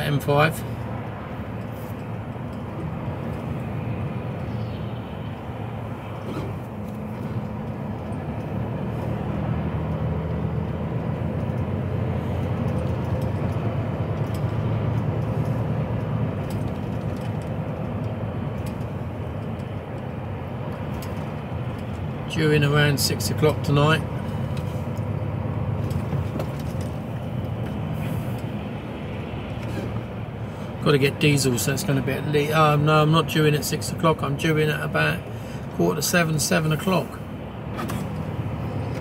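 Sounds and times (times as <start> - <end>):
lorry engine and tyre drone: 0.0 - 39.0.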